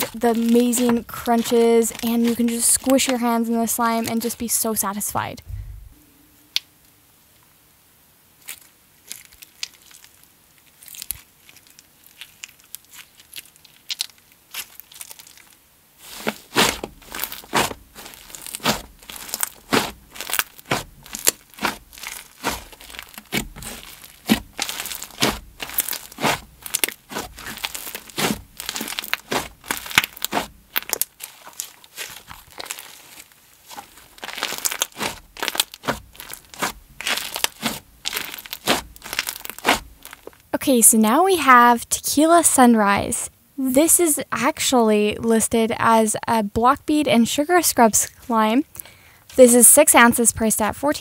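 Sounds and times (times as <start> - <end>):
slime crunching and popping: 0.0 - 3.3, 8.4 - 40.5.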